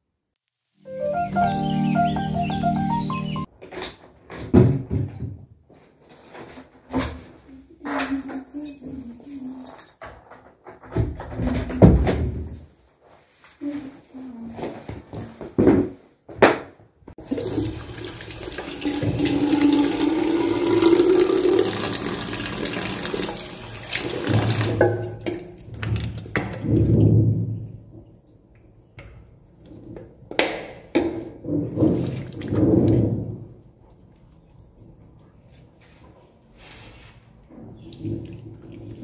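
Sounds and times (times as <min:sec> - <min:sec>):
water running at a sink: 0:17.2 - 0:26.9
splashing and rubbing face: 0:32.0 - 0:32.6, 0:33.8 - 0:36.0.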